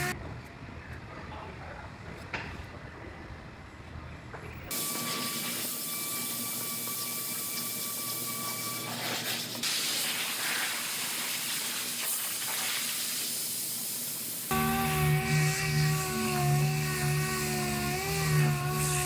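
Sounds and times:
sandpaper rasping on filler: 0:08.3 - 0:12.9, 0:14.5 - 0:19.0.

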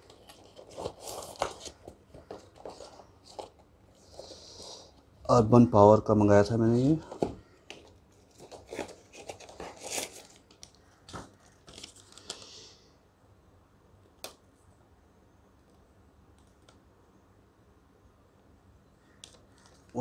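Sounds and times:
packaging rustling: 0:00.0 - 0:04.4, 0:07.0 - 0:12.5.

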